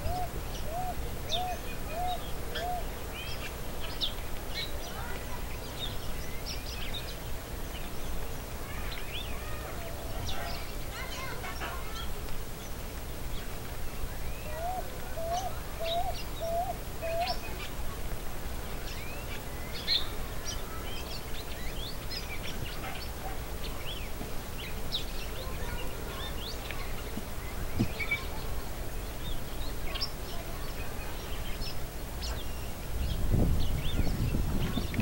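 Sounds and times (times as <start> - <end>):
birds chirping: 0.0 - 35.0.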